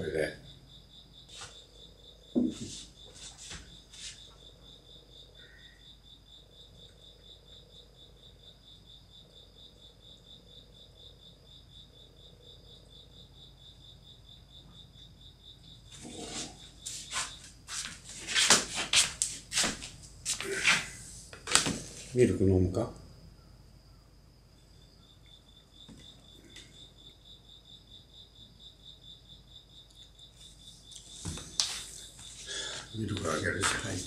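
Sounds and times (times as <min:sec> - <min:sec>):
insects chirping trill: 0:00.0 - 0:34.0
soft knocks: 0:02.4 - 0:02.8.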